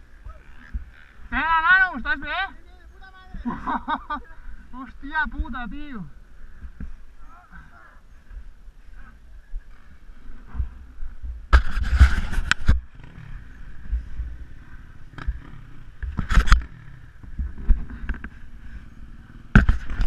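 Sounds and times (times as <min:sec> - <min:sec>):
wind rumble on microphone: 0:08.1 - 0:20.0
camera handling noise: 0:11.5 - 0:12.8, 0:16.0 - 0:16.7.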